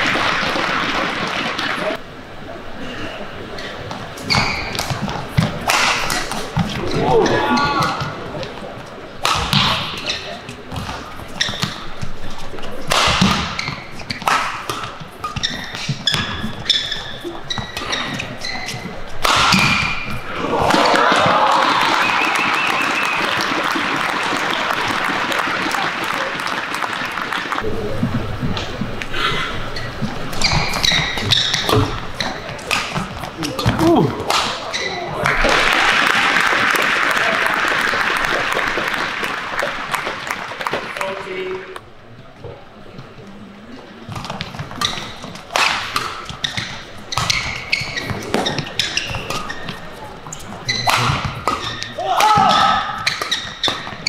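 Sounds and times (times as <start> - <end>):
crowd applauding: 0.0 - 2.0, 20.4 - 27.6, 35.2 - 41.7
shoes squeaking on court: 3.5 - 20.3, 28.3 - 35.4, 42.1 - 54.0
rackets hitting shuttlecock: 4.3 - 8.6, 9.2 - 12.2, 12.8 - 21.2, 30.3 - 35.6, 44.1 - 49.8, 50.4 - 54.0.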